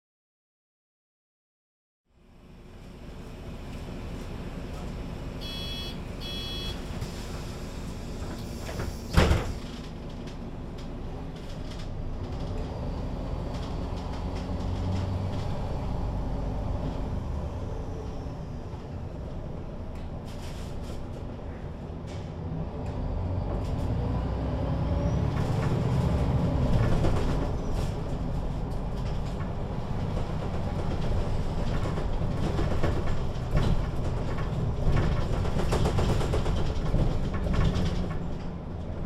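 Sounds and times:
bus diesel engine pulling away: 2.4s - 9.8s, 10.5s - 39.0s
door-warning beeps: 5.4s - 6.8s
bus doors shutting with pneumatic hiss: 5.4s - 9.8s.

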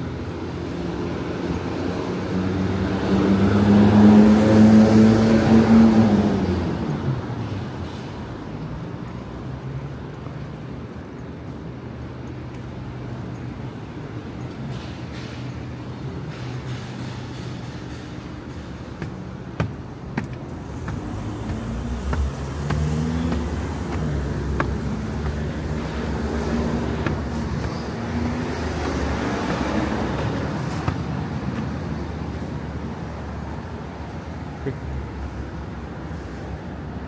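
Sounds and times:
vehicle engine passing: 1.8s - 6.9s, 20.1s - 32.8s.

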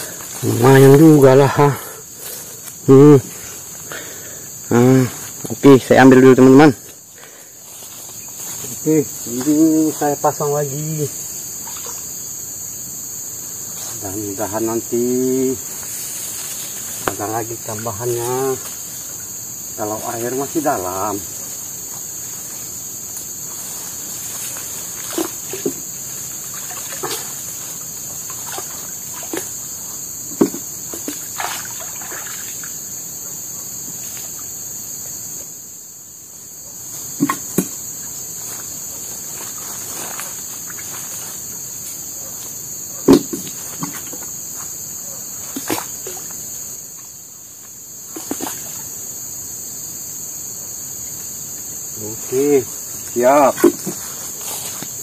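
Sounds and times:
forest insects chorus: 0.0s - 55.0s
small water splashes: 26.4s - 27.5s, 28.1s - 29.6s, 30.4s - 32.8s, 45.5s - 46.3s, 48.1s - 48.9s.

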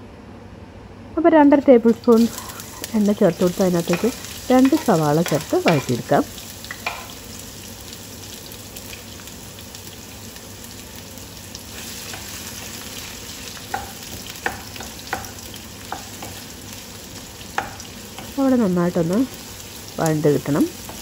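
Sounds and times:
onions sizzling in oil: 1.6s - 21.0s
stirring knocks against pan: 13.7s - 16.5s.

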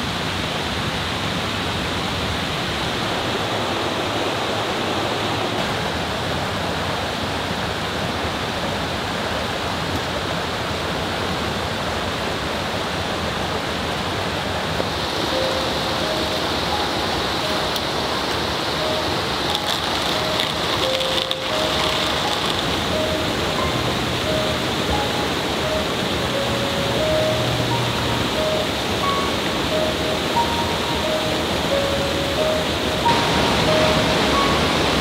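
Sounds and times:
mountain stream rushing: 0.0s - 35.0s
soft music notes: 14.8s - 35.0s.

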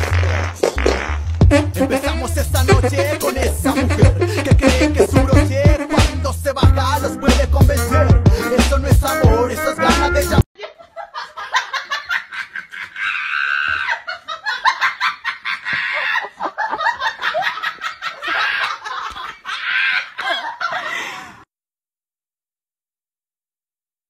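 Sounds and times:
person laughing hard: 2.0s - 5.6s, 9.8s - 21.4s.

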